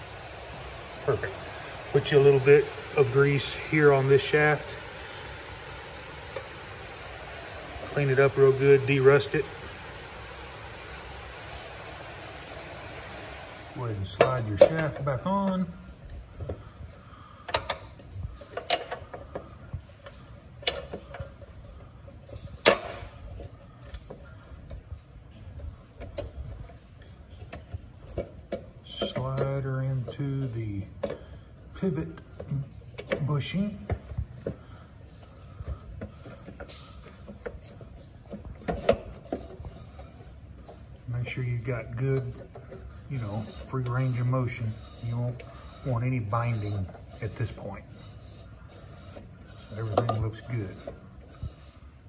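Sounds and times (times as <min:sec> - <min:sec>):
light metal scraping: 0:35.2 - 0:52.0.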